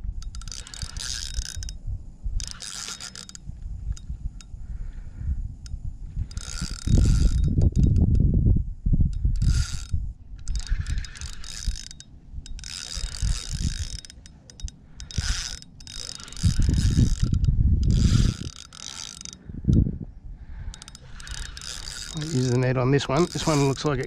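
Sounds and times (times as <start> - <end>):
fishing reel gears whirring: 0.0 - 8.3, 9.1 - 24.0.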